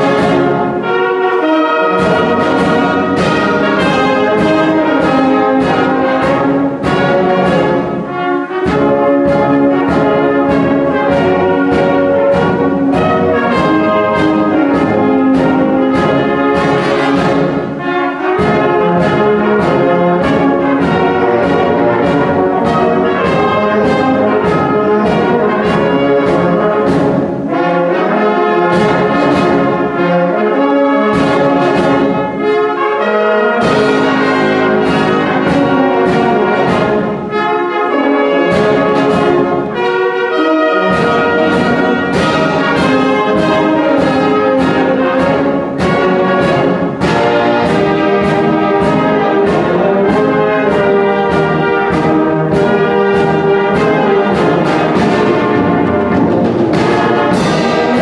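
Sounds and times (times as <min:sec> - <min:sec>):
brass band playing: 0:00.0 - 0:58.0
brass bass line: 0:00.0 - 0:58.0
drum kit beat: 0:02.0 - 0:27.5, 0:40.9 - 0:58.0.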